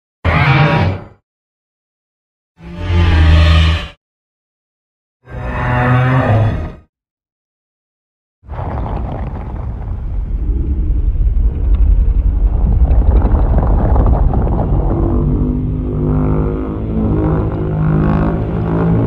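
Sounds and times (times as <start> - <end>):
loud low rumbling rush: 8.5 - 19.0.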